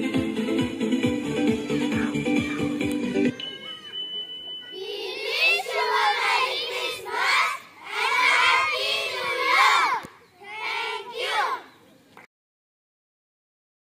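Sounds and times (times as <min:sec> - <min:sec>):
children shouting together: 0:01.5 - 0:04.0, 0:04.7 - 0:11.8
steady high tone: 0:03.2 - 0:06.8.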